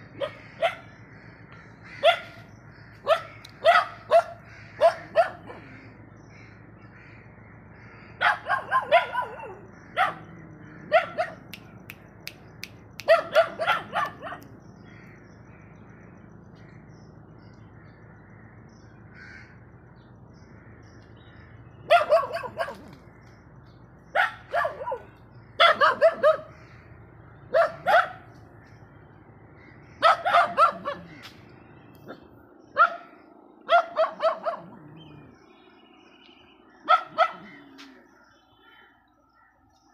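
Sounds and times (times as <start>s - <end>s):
dog barking: 0.2s - 0.8s, 2.0s - 2.4s, 3.0s - 5.7s, 8.2s - 11.5s, 13.0s - 14.6s, 21.8s - 22.9s, 24.1s - 26.5s, 27.5s - 28.3s, 30.0s - 31.2s, 32.1s - 33.1s, 33.7s - 35.1s, 36.8s - 37.9s.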